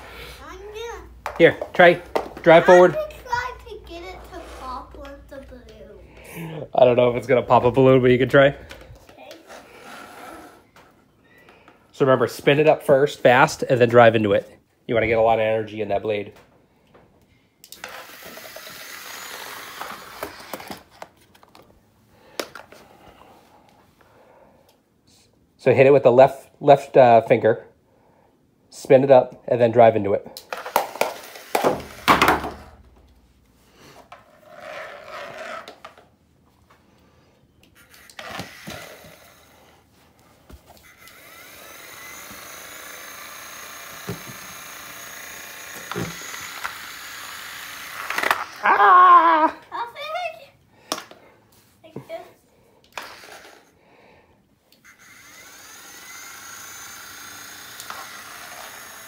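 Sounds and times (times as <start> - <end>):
small electric motors whirring: 17.6 - 21.0, 30.5 - 32.1, 37.6 - 39.9, 40.7 - 49.4, 52.9 - 53.8, 54.7 - 59.0.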